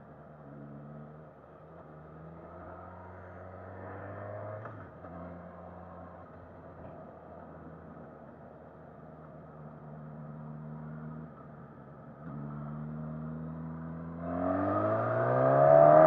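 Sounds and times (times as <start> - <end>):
motorcycle engine accelerating: 12.4 - 16.0.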